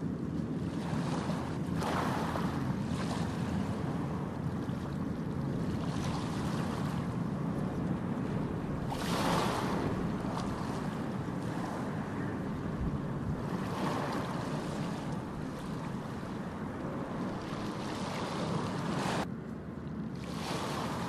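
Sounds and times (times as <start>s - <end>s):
ocean waves breaking on beach: 0.0s - 19.3s, 19.9s - 21.0s.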